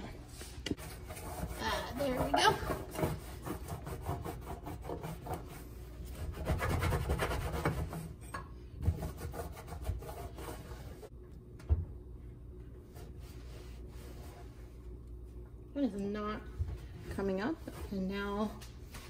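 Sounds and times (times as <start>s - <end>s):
cloth scrubbing stove top: 0.3s - 11.1s, 12.8s - 15.0s, 16.8s - 19.0s.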